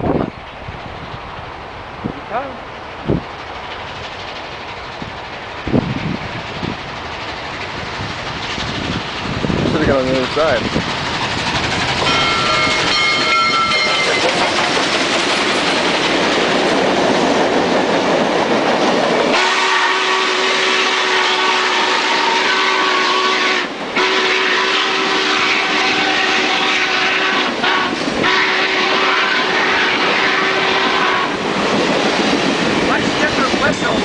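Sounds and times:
steam rush and running gear: 0.0s - 34.0s
train cars rolling past: 0.0s - 34.0s
steam locomotive whistle: 12.0s - 14.3s, 19.3s - 31.4s.

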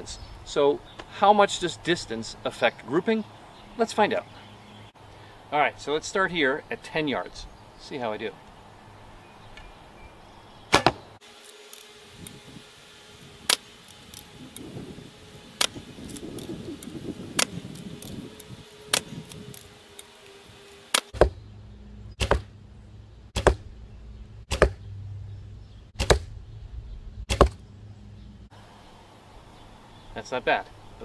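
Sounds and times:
arrows striking foam target: 10.7s - 11.1s, 20.9s - 21.4s, 22.2s - 22.6s, 23.4s - 23.7s, 24.5s - 24.8s, 26.0s - 26.4s, 27.3s - 27.6s
handling rustle: 11.2s - 21.1s.

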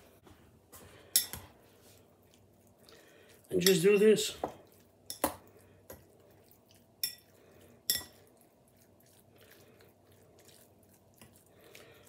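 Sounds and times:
fork clinking against ceramic bowl: 1.1s - 1.5s, 7.9s - 8.2s.

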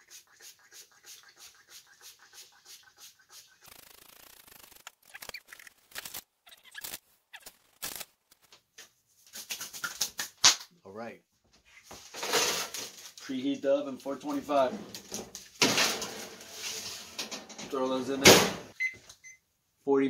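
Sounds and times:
seasoning shaken over food: 0.0s - 4.8s, 9.3s - 10.4s.

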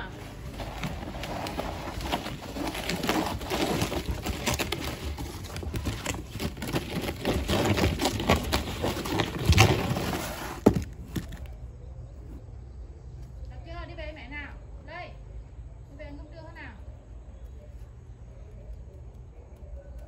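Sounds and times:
box crackling and scraping: 0.0s - 12.4s.

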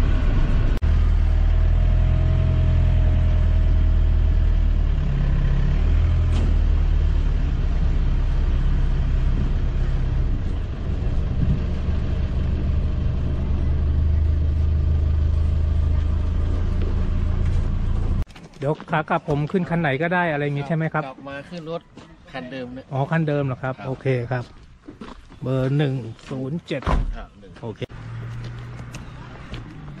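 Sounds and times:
truck engine rumble: 0.0s - 18.3s, 27.0s - 30.0s
road noise: 0.0s - 30.0s.

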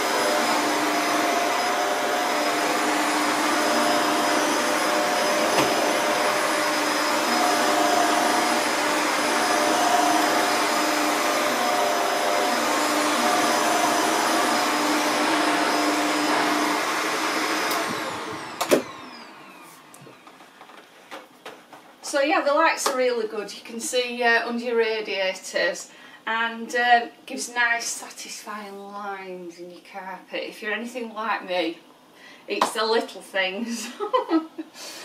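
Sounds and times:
vacuum cleaner on carpet: 0.0s - 20.5s.

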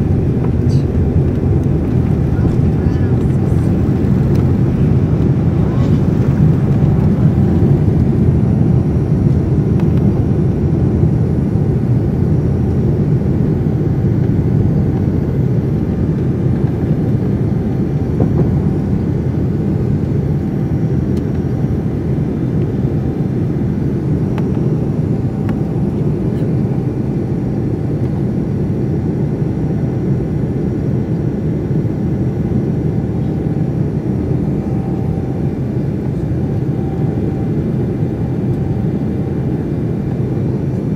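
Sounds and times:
faint steady hum: 0.0s - 27.7s
jet engine and airflow rush: 0.0s - 40.9s.

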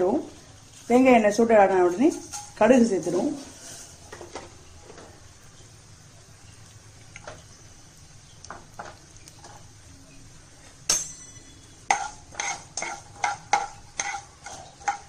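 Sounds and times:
metal spatula scraping a pan: 1.7s - 4.4s, 10.9s - 15.0s
spatula clanging on pan: 2.1s - 3.2s, 10.9s - 15.0s
ringing spatula strokes: 10.9s - 15.0s.

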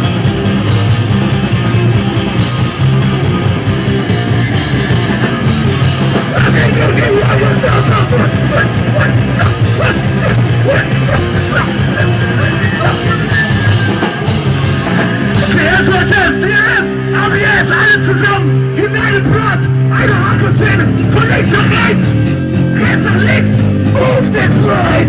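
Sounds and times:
punk rock band playing: 0.0s - 25.0s
vocalist shouting: 6.3s - 14.0s, 15.4s - 22.2s.

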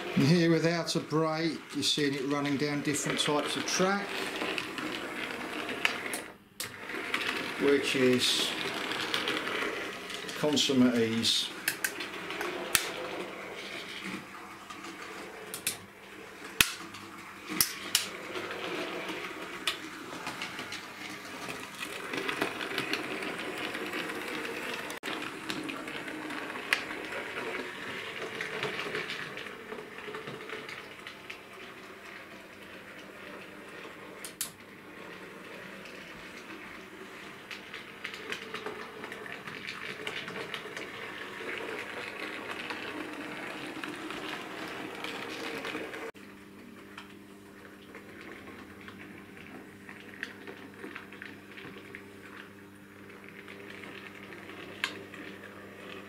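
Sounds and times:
wheels clicking over rail joints: 0.0s - 13.3s
model train motor whirring: 0.0s - 14.2s, 17.5s - 31.1s.

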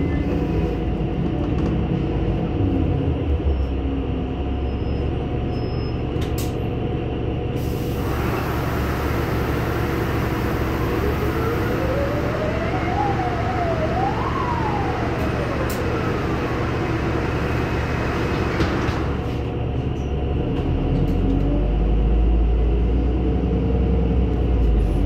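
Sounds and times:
bus engine rumble: 0.0s - 25.0s
rising whine: 8.0s - 18.4s.

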